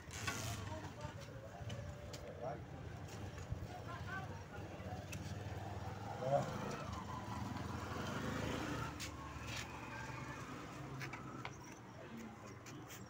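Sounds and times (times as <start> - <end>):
road traffic rumble: 0.0 - 13.0.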